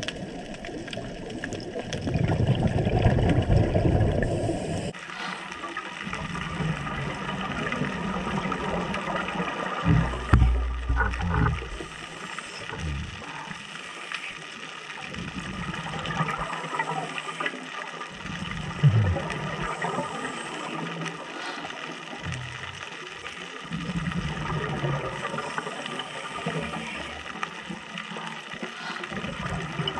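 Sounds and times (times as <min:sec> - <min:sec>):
bubbles gurgling underwater: 0:00.0 - 0:05.0, 0:05.8 - 0:13.5, 0:15.1 - 0:21.1, 0:22.2 - 0:27.9, 0:29.1 - 0:29.9
underwater hiss: 0:04.0 - 0:06.7, 0:11.6 - 0:29.9.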